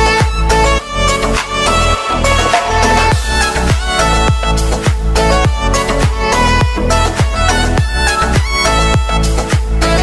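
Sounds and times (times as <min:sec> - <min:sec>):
kick drum beat: 0:00.2 - 0:00.5, 0:03.1 - 0:09.9.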